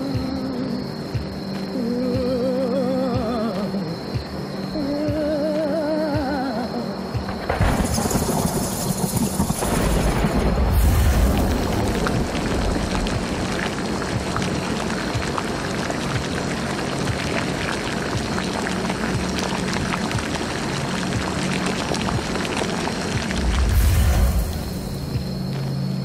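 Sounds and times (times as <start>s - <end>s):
low music drone: 9.9s - 26.0s
bubbling liquid: 10.7s - 25.5s.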